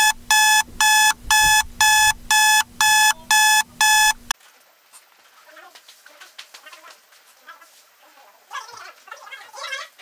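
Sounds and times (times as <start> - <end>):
digital alarm clock beeping: 0.0 - 4.2.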